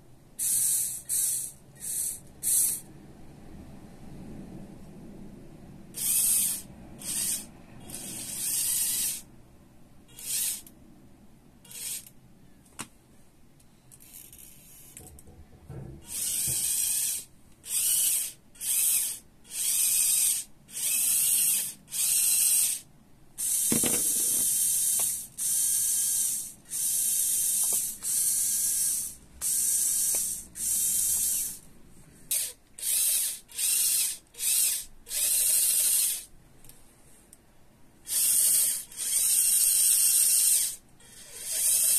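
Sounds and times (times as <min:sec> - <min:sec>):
toy electric motor whirring: 0:00.4 - 0:02.9, 0:05.9 - 0:09.3, 0:10.1 - 0:10.7, 0:11.6 - 0:12.1, 0:13.9 - 0:15.1, 0:16.0 - 0:31.6, 0:32.3 - 0:36.3, 0:38.0 - 0:41.9.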